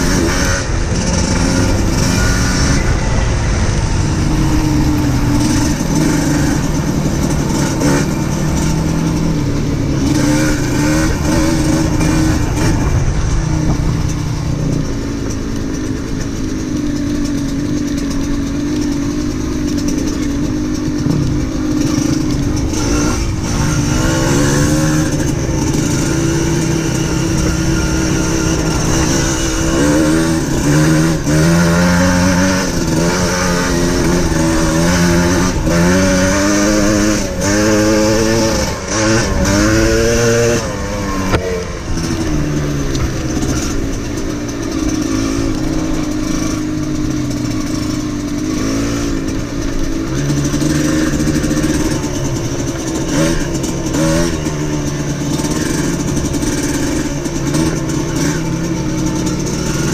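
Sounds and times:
off-road vehicle engine revving: 0:00.0 - 0:59.9.

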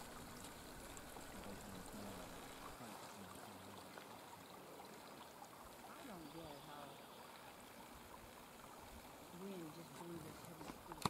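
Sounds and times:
faint outdoor hiss: 0:00.0 - 0:11.0.

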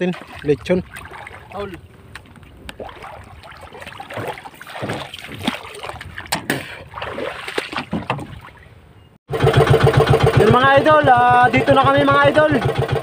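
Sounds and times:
water splashing and sloshing: 0:00.0 - 0:10.4
knocks and thumps on boat: 0:04.1 - 0:08.5.

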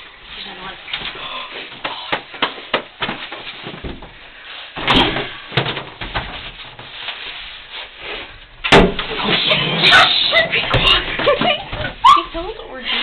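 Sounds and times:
handling rustles and knocks: 0:00.9 - 0:09.4.

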